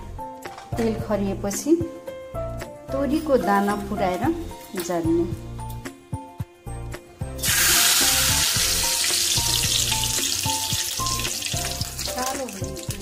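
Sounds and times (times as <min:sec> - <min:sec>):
seeds sizzling in hot oil: 0:07.4 - 0:13.0.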